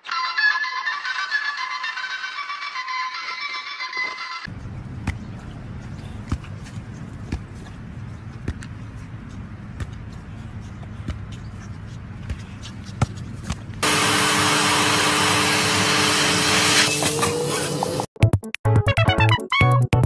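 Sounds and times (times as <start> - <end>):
vacuum cleaner suction hiss: 13.8 - 18.1.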